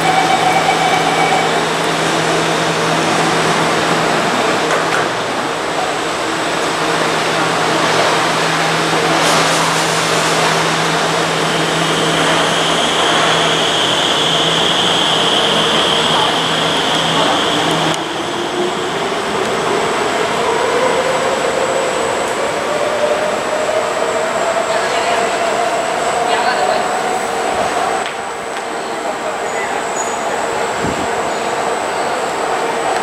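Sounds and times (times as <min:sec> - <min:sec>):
train equipment hum: 0:00.0 - 0:26.2.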